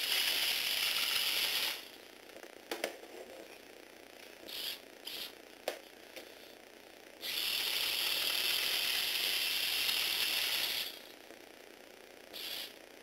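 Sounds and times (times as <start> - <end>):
small electric motor gear whine: 0.0 - 2.0, 4.4 - 5.4, 7.2 - 11.2, 12.3 - 12.8.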